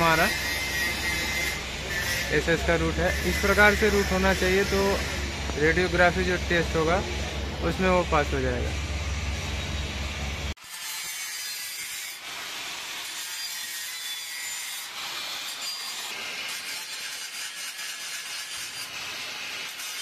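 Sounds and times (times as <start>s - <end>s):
angle grinder grinding metal: 0.0s - 20.0s
low hum: 0.3s - 10.6s.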